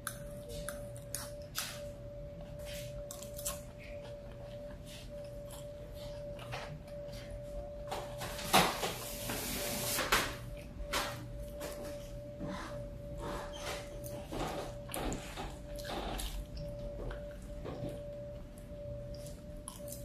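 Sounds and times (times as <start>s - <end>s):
chewing with mouth clicks: 0.0s - 7.6s, 13.9s - 20.0s
faint steady hum: 0.0s - 20.0s.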